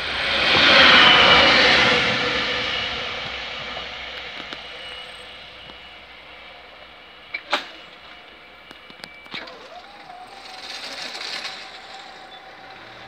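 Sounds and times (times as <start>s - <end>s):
electric motor whine: 7.9s - 13.0s.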